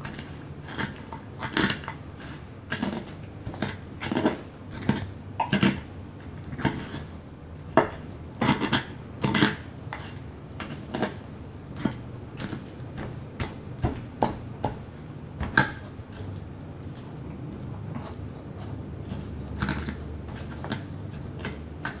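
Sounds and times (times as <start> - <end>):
pestle knocking and grinding: 0.0 - 22.0.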